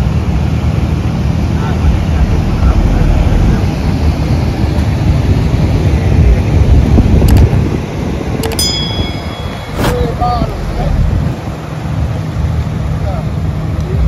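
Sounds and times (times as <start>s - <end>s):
car road and wind noise: 0.0s - 14.0s.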